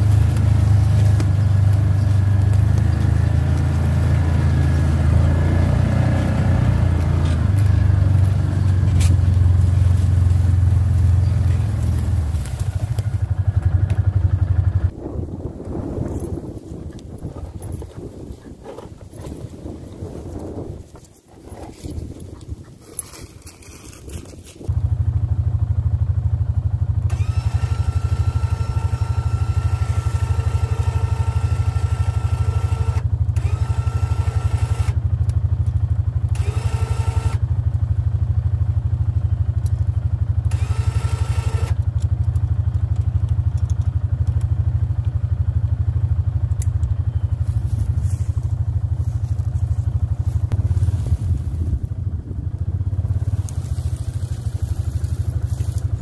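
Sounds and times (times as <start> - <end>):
engine idling: 0.0 - 21.0, 21.7 - 56.0
electric winch whining: 27.1 - 35.0, 36.3 - 37.4, 40.4 - 41.8.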